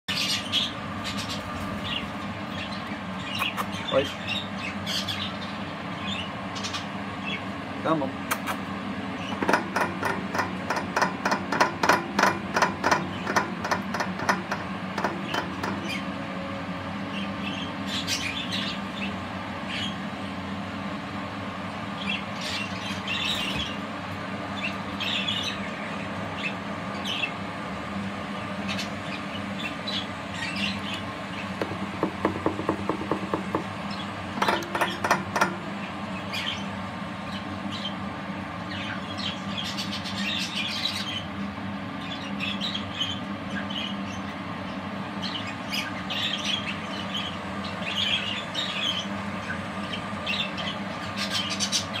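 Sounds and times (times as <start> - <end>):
budgerigars chirping: 0.1 - 7.4, 9.2 - 16.1, 38.7 - 41.3, 45.2 - 52.0
steady hum: 0.2 - 45.2.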